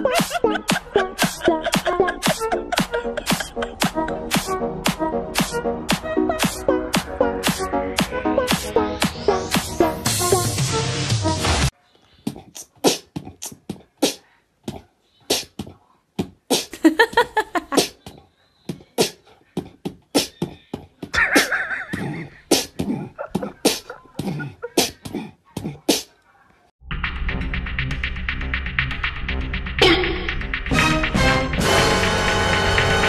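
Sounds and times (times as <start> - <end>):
music: 0.0 - 11.7, 26.8 - 33.0
beatboxing clicks and pops: 12.3 - 15.7.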